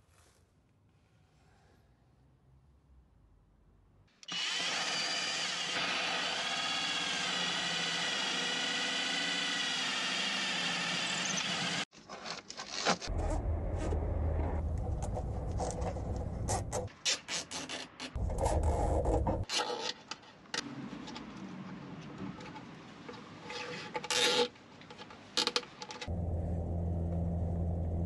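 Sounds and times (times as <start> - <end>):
electric drill whine: 4.3 - 11.9
knocks and rubbing: 18.1 - 19.5.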